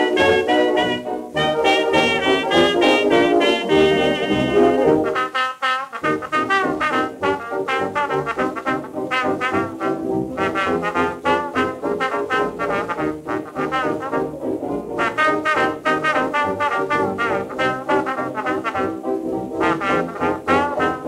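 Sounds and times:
dance orchestra on old record: 0.0s - 5.4s.

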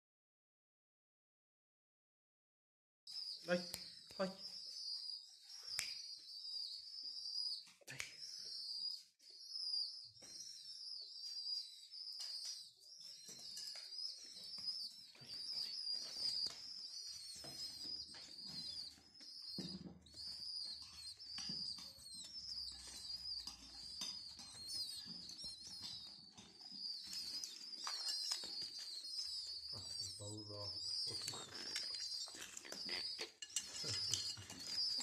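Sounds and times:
pigeon squabs peeping: 12.1s - 35.0s.

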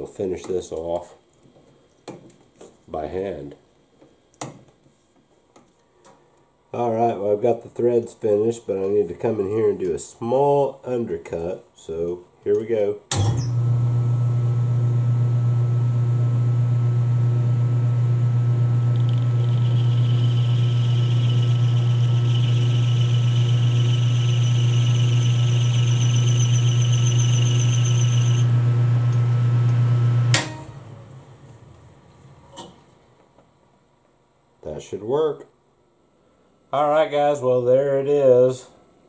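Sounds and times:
lathe motor hum: 18.5s - 29.8s
cutting tool whine: 18.8s - 29.3s.

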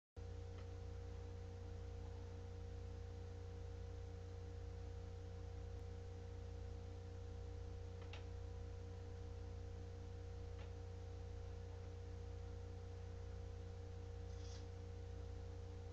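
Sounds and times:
low electrical hum: 0.2s - 15.9s
light hiss: 14.2s - 14.8s.

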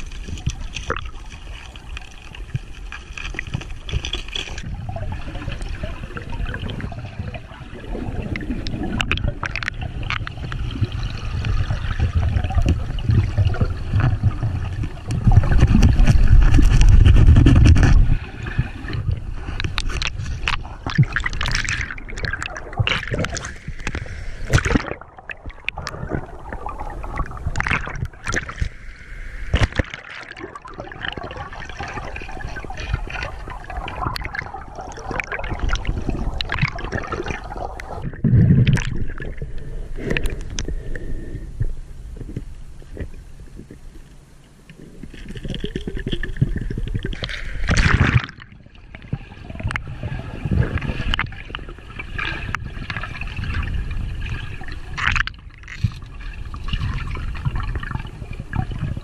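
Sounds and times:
water splashing: 0.0s - 40.8s, 44.7s - 59.0s
water gurgling and sloshing: 0.0s - 59.0s
heavy muffled rumble: 12.2s - 19.5s.

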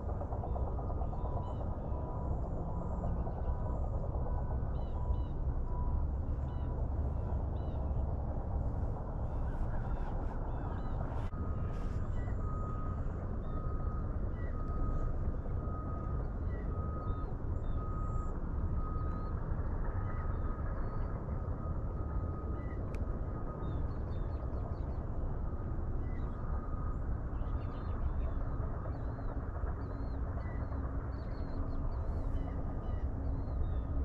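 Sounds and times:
low rumble: 0.0s - 19.3s
faint bird chirps: 9.2s - 21.2s.

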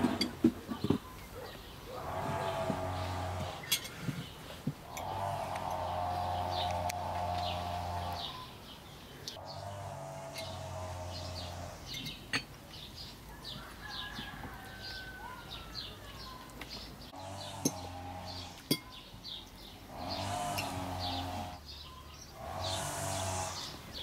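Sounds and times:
bird chirping: 0.1s - 24.0s
cow lowing: 1.9s - 4.2s, 4.9s - 8.4s.

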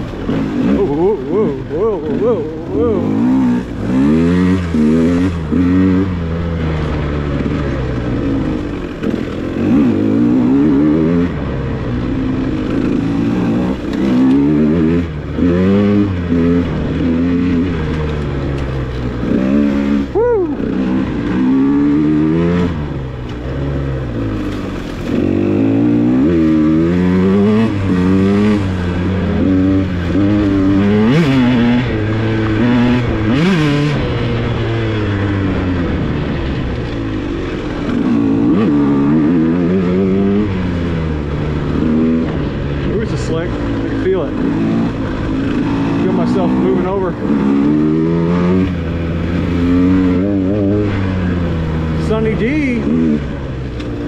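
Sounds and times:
dirt bike engine revving: 0.0s - 54.0s.

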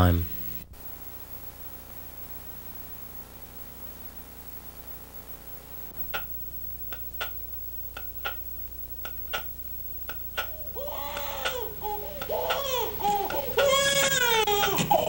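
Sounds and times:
film soundtrack hum and hiss: 0.0s - 15.0s
clock ticking: 6.1s - 15.0s.

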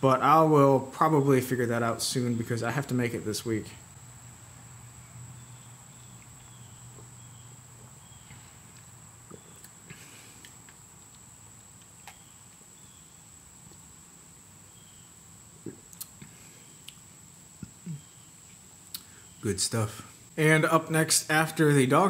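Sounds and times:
faint high chirps: 5.0s - 10.4s, 17.6s - 20.1s.

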